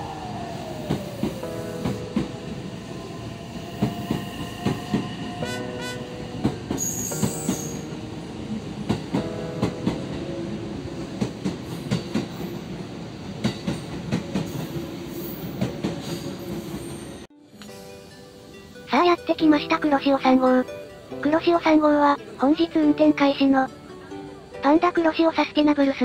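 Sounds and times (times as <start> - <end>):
train running noise: 0.0 - 18.6.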